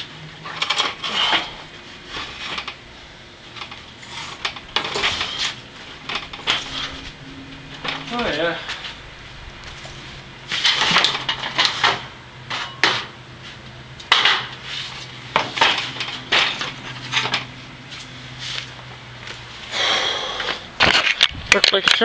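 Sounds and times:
low steady hum: 0.0s - 21.6s
metal parts clanking: 0.4s - 2.8s, 3.6s - 9.0s, 9.6s - 13.1s, 14.0s - 17.5s.

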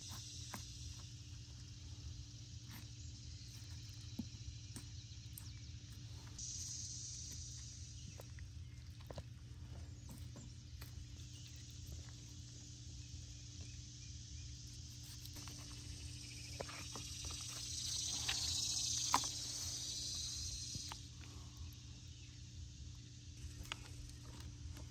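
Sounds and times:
high hiss: 17.3s - 21.1s.

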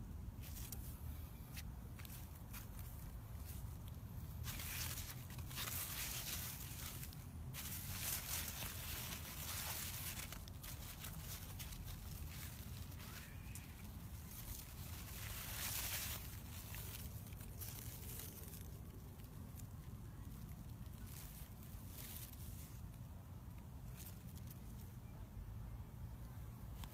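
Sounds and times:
brushing rustle of plants: 0.3s - 25.0s.

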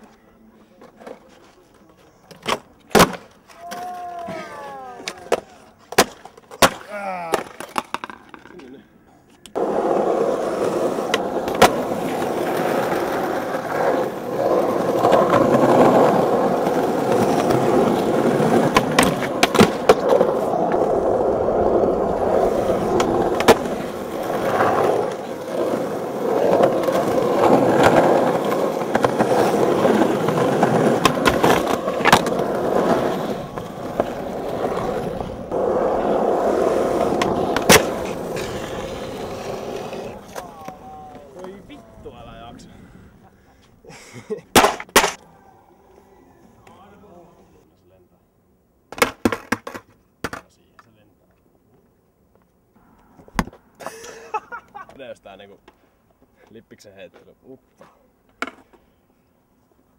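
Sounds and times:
skateboard clacking on pavement: 5.0s - 8.7s, 9.4s - 41.7s, 44.6s - 45.2s
skateboard wheels rolling on asphalt: 7.4s - 8.7s, 9.5s - 45.2s.

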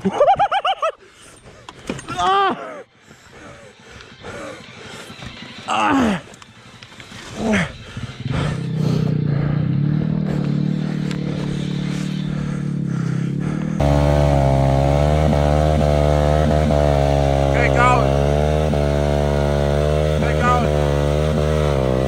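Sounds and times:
minibike engine running: 3.1s - 22.0s.

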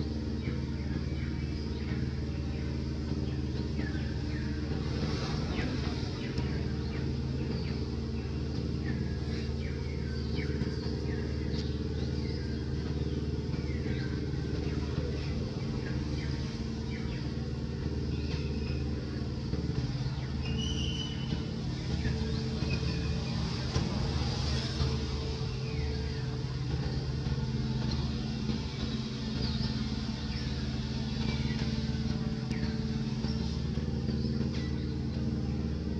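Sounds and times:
engine humming: 0.0s - 35.9s
faint high chirps: 20.3s - 23.2s.

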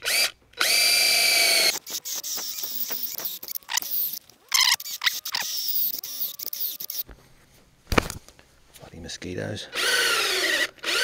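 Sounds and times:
cordless drill boring wood: 0.0s - 7.0s, 9.7s - 11.0s
gliding squeaky tones: 1.7s - 7.1s.

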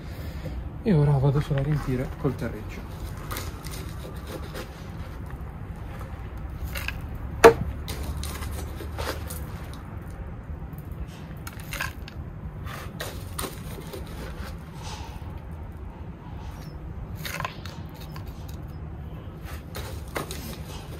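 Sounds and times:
gritty soil crunching: 1.1s - 15.3s, 19.3s - 20.9s
sharp knock: 7.4s - 7.8s.

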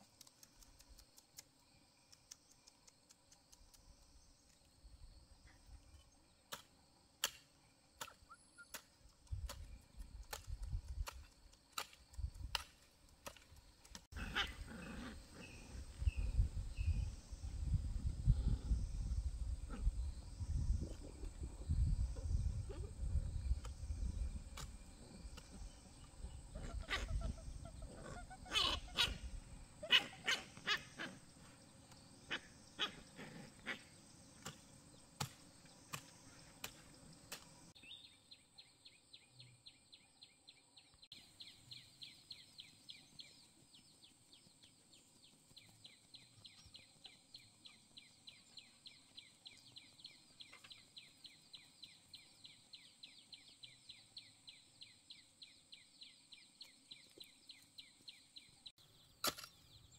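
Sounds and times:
hoe chopping into dry soil: 34.4s - 37.5s, 59.2s - 59.6s.

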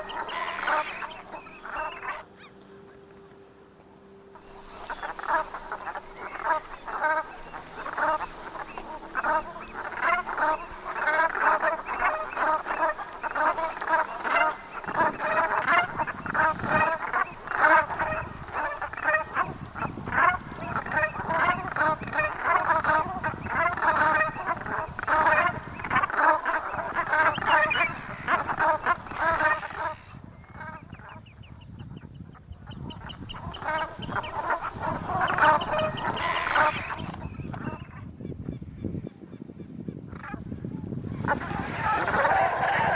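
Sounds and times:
geese honking: 0.0s - 3.0s, 4.3s - 31.4s, 32.6s - 38.1s, 41.1s - 42.9s
low rushing noise: 0.0s - 29.9s, 41.1s - 42.9s.

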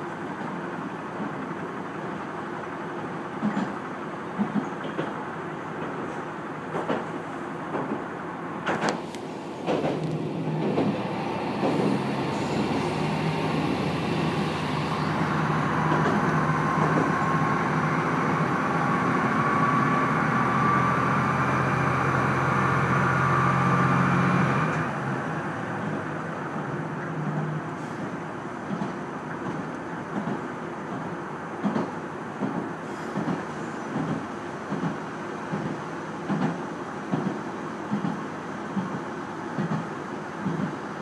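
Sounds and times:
train wheels clacking over rail joints: 3.4s - 5.2s, 5.8s - 9.0s, 9.6s - 13.2s, 15.8s - 17.2s, 31.6s - 38.2s, 38.8s - 40.8s.

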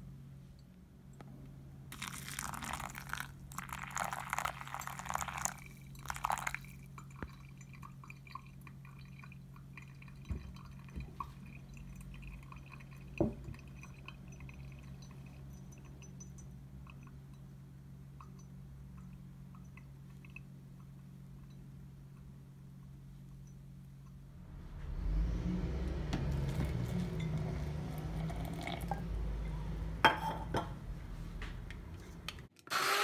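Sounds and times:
water pouring onto coffee grounds: 1.9s - 15.9s, 28.0s - 29.0s
bubbling and dripping: 1.9s - 17.5s, 18.2s - 22.2s, 26.1s - 29.6s.

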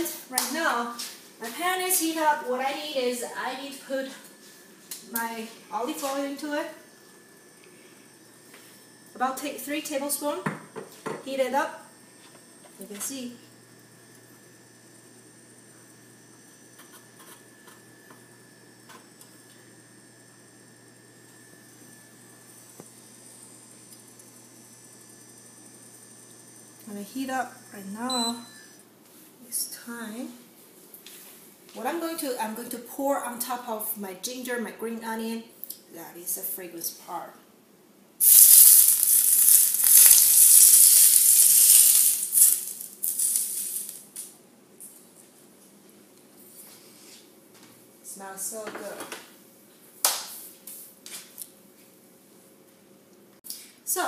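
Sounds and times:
electric cooktop humming: 0.0s - 44.9s, 51.4s - 54.0s
faint high whine: 0.9s - 28.8s, 38.2s - 44.2s
hot oil sizzling loudly: 38.2s - 44.1s.

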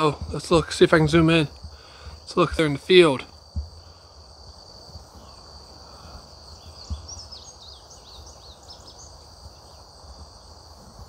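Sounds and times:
bird chirping: 0.0s - 10.6s
crickets chirping: 0.0s - 11.0s
soft thump: 3.5s - 3.8s.

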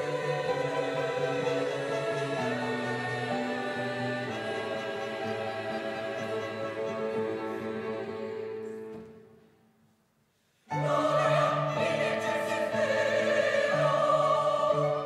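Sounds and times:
orchestral music with operatic singing: 0.0s - 9.5s, 10.6s - 15.0s
choral music: 0.0s - 15.0s.

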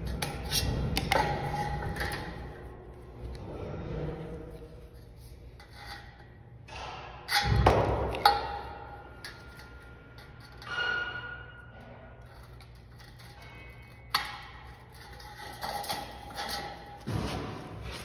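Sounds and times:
metal clanking: 5.6s - 18.0s
sheet steel ringing: 7.1s - 15.2s.

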